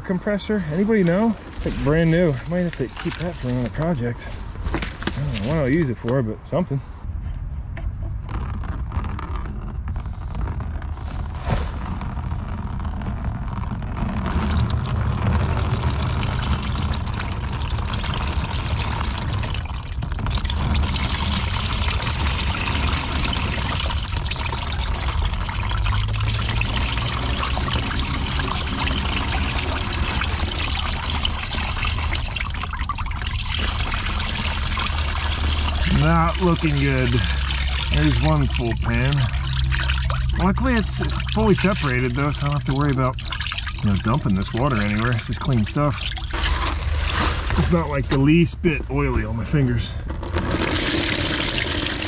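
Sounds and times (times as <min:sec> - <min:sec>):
water pouring into drain pan: 0:00.7 - 0:04.2, 0:13.7 - 0:48.0, 0:50.2 - 0:52.0.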